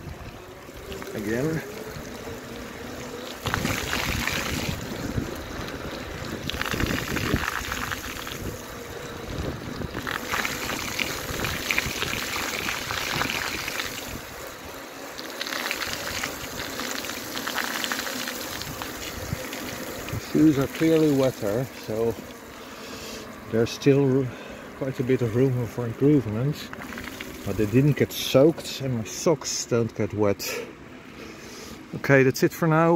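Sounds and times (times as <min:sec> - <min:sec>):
bicycle tyres splashing through water: 0:00.0 - 0:23.0, 0:25.1 - 0:28.3.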